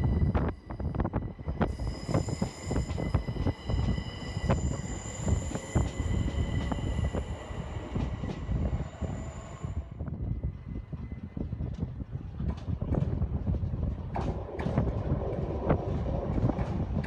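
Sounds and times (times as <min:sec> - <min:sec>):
electric train whine: 0:00.0 - 0:12.1.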